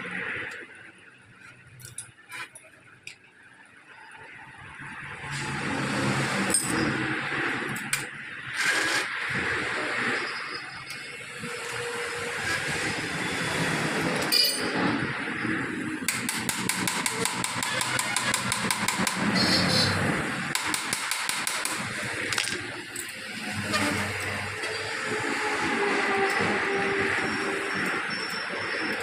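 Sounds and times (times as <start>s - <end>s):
tool and metal parts clattering: 14.2s - 14.8s, 22.3s - 23.6s.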